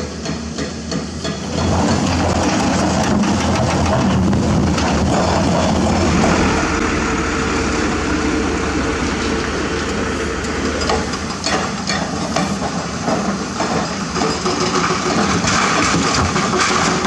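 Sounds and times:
diesel engine running: 1.4s - 17.0s
rocks knocking and clattering: 12.3s - 17.0s.

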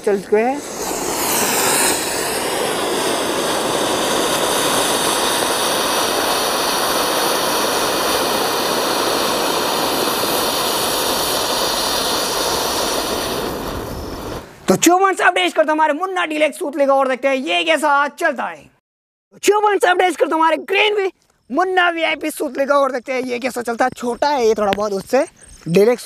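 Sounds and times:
firework fountain hissing: 0.0s - 14.6s.

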